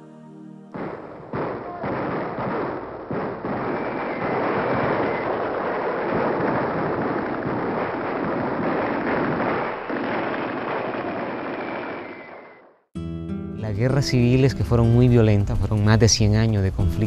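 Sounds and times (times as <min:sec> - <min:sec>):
strong wind blowing: 0:00.8 - 0:12.7.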